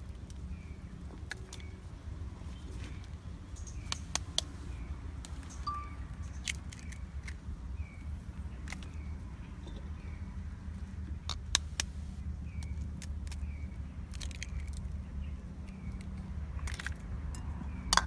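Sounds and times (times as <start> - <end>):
eggshells cracking: 6.4 - 7.4, 12.6 - 15.0, 15.6 - 17.2.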